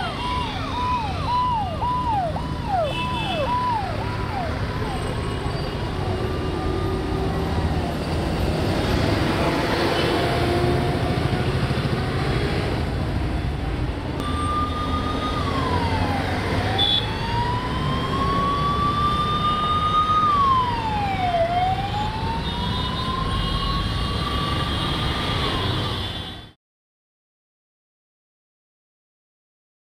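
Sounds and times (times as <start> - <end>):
ambulance siren wailing: 0.0 - 11.1, 14.2 - 26.4
heavy road traffic rumble: 0.0 - 26.5.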